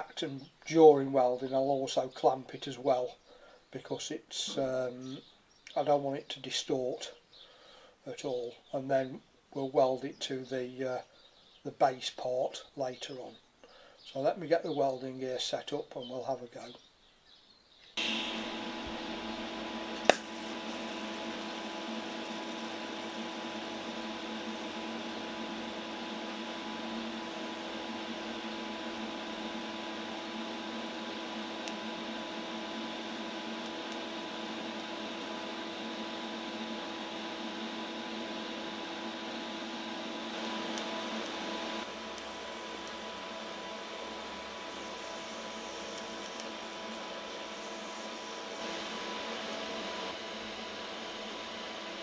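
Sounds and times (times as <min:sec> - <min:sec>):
welding set hum and fan: 0:18.0 - 0:52.0.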